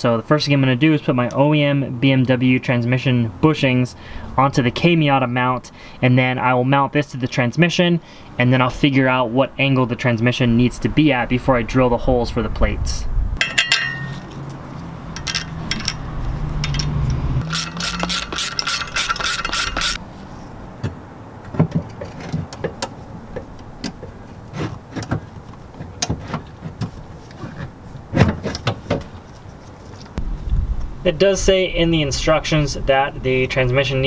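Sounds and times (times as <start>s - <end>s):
tools and metal parts clinking: 13.4s - 20.0s
loud mechanical buzz: 16.9s - 20.0s.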